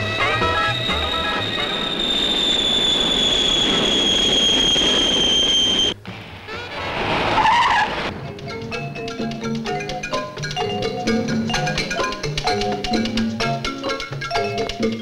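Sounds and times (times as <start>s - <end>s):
music: 0.0s - 1.6s, 6.0s - 7.0s, 8.1s - 15.0s
jet noise rush: 0.0s - 9.4s
jet engine whine: 0.0s - 10.4s.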